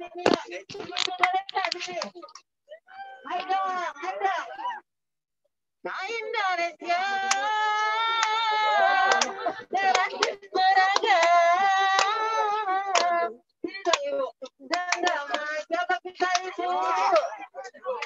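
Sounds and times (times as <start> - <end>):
woman singing into microphone: 5.9 - 17.2.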